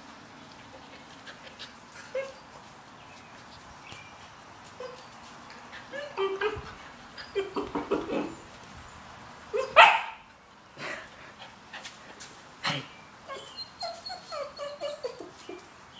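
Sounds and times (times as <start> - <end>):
puppy yipping and barking: 9.5 - 10.2, 13.3 - 15.6.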